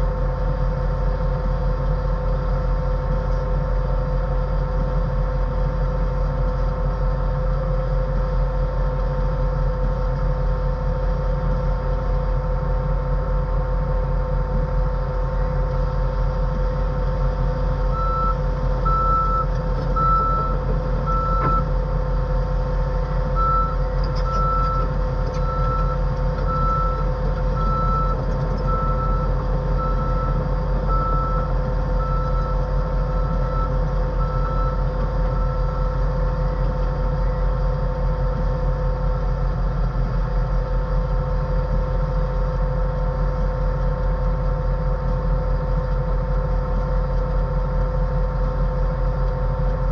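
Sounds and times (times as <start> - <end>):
diesel engine running under load: 0.0 - 49.9
backup alarm beeping: 17.9 - 21.7.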